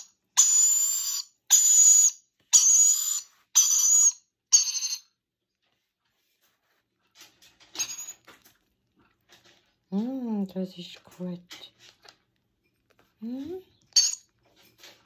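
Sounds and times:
parrot chick begging calls: 0.0s - 4.7s.

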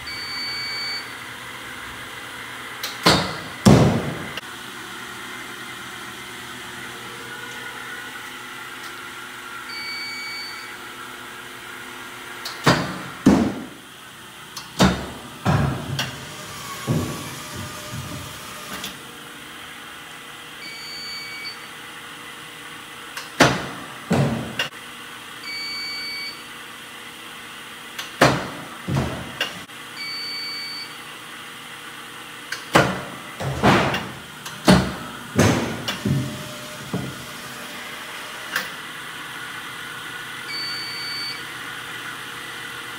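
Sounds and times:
pitching machine humming: 32.8s - 42.9s.

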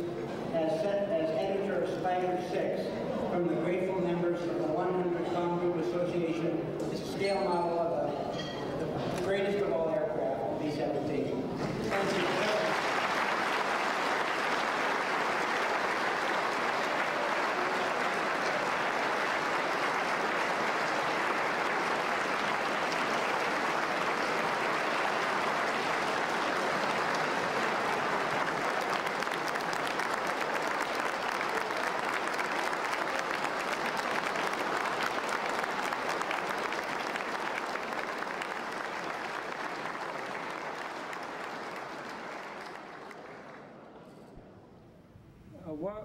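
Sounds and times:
audience applauding: 11.8s - 43.9s.

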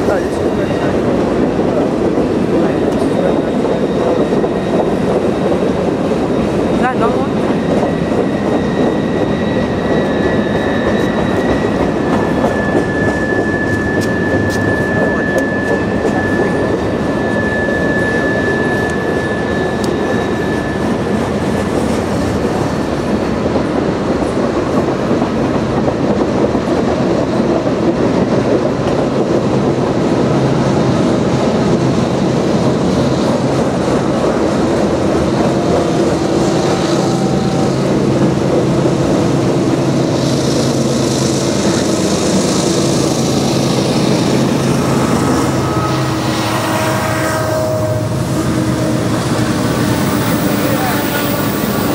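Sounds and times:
diesel locomotive engines droning: 0.0s - 51.9s
freight train wheels on rails: 0.0s - 51.9s
high wheel squeal: 6.2s - 21.6s, 40.3s - 51.9s
hissing rush: 30.0s - 51.9s.

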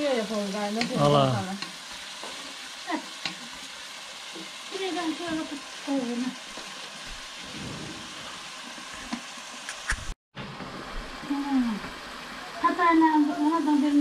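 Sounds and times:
food sizzling in a pan: 0.0s - 14.0s.

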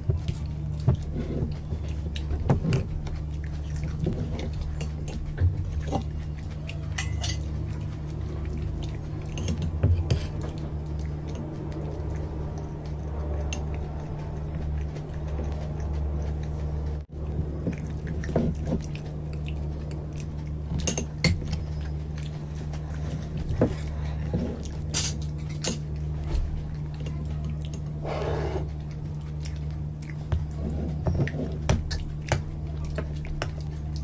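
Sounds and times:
steady low hum: 0.0s - 34.0s
spoons clinking on ceramic bowls: 7.0s - 7.5s.

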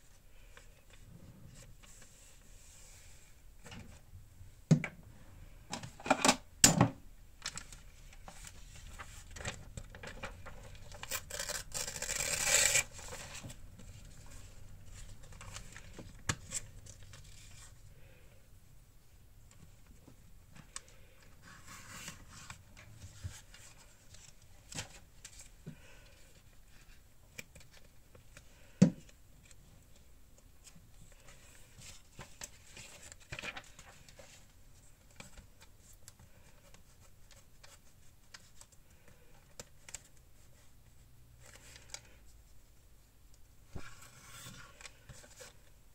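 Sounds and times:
paper tearing: 11.0s - 13.0s.

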